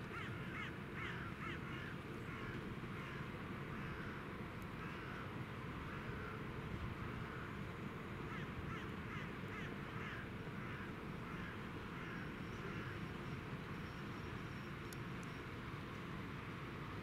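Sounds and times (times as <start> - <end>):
crows cawing: 0.1 - 4.2, 4.8 - 6.4, 7.0 - 7.6, 8.3 - 13.1.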